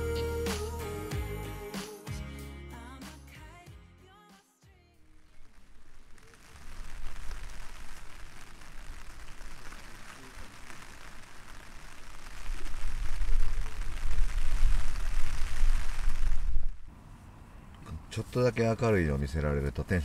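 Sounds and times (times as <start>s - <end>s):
rain hiss: 5.2s - 16.9s.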